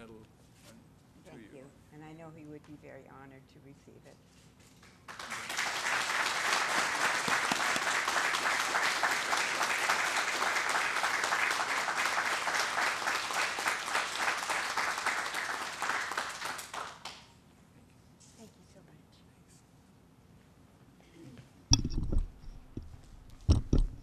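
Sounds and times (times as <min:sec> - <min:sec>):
audience applauding: 0:05.1 - 0:17.3.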